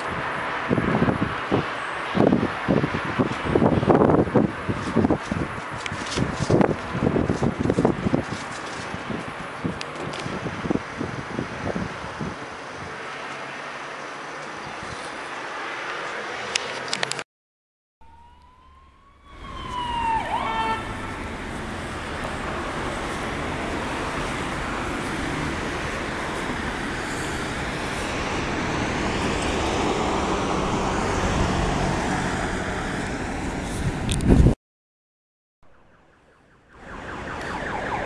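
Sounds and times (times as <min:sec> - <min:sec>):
engine and road noise: 0:00.0 - 0:17.3, 0:18.0 - 0:34.6, 0:35.7 - 0:38.0
sirens wailing: 0:18.0 - 0:33.7, 0:35.7 - 0:38.0.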